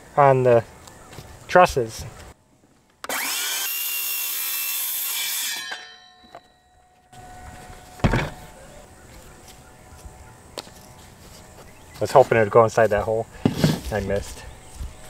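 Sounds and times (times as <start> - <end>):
circular saw cutting wood: 3.0 - 6.5
thump: 8.0 - 8.4.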